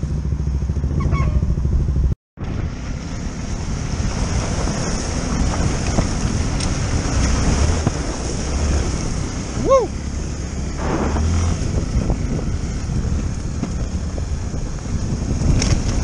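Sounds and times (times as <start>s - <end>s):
motorcycle engine running: 0.0s - 16.0s
wind buffeting microphone: 3.4s - 16.0s.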